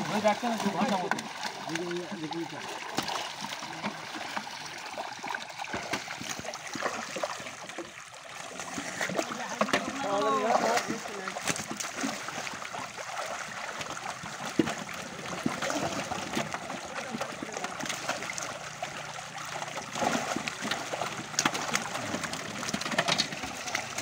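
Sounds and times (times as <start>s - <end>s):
fish splashing in water: 0.0s - 24.0s.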